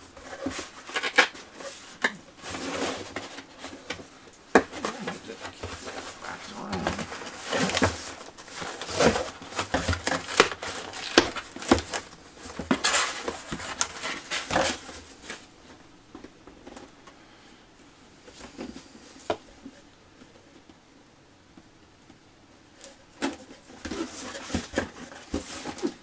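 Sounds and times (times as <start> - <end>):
cardboard and plastic parts rustling: 0.2 - 16.9, 22.8 - 26.0.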